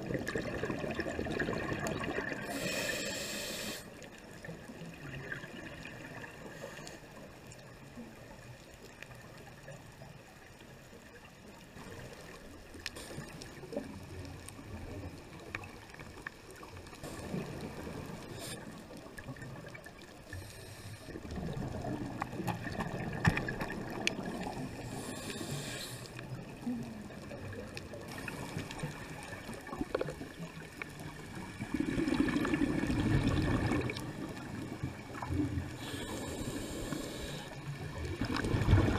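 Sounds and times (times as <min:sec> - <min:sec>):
regulator bubbles gurgling underwater: 0:00.0 - 0:38.9
faint clicks: 0:12.1 - 0:17.4, 0:22.1 - 0:31.0.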